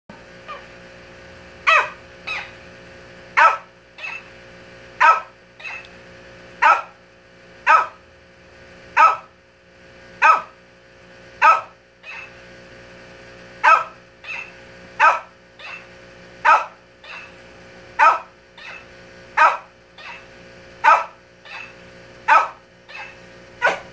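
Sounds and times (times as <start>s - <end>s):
dog barking: 1.7s - 2.5s, 3.4s - 4.3s, 5.0s - 5.8s, 6.6s - 7.0s, 7.6s - 8.0s, 9.0s - 9.3s, 10.2s - 10.6s, 11.4s - 12.3s, 13.6s - 17.3s, 18.0s - 23.9s
toy playing back bark: 18.0s - 23.2s.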